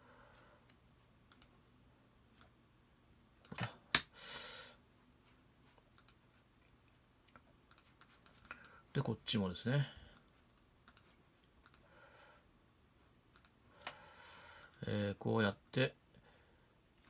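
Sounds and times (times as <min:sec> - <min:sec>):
computer mouse clicking: 0:00.7 - 0:01.6, 0:05.9 - 0:06.2, 0:07.3 - 0:08.8, 0:10.2 - 0:11.9, 0:13.3 - 0:14.0.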